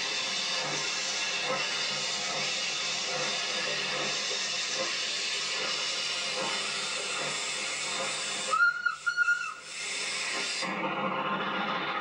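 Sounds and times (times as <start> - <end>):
locomotive steam hiss: 0.0 - 12.0
steam whistle blasts: 8.4 - 10.6.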